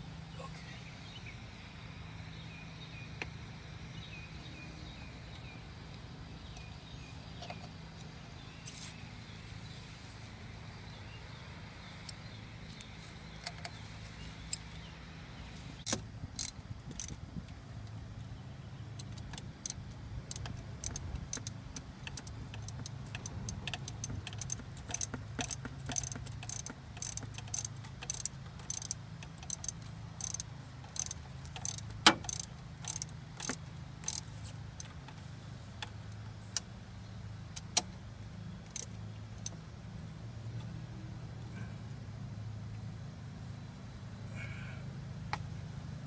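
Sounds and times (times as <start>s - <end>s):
steady low hum: 0.0s - 46.0s
ratchet wrench clicking: 15.8s - 17.2s, 18.9s - 35.2s, 38.7s - 39.6s.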